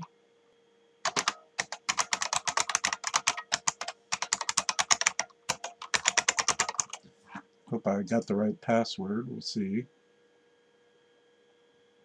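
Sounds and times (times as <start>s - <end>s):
computer keyboard typing: 1.0s - 7.0s.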